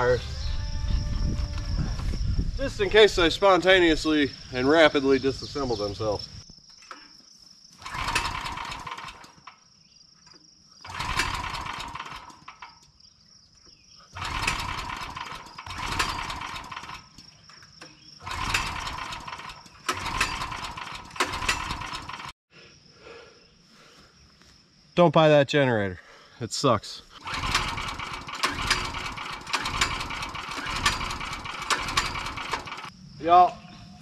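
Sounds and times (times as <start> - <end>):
crickets chirping: 0.0 - 34.0
generator cranking: 7.8 - 9.6, 10.3 - 13.0, 14.1 - 22.3, 27.2 - 33.0.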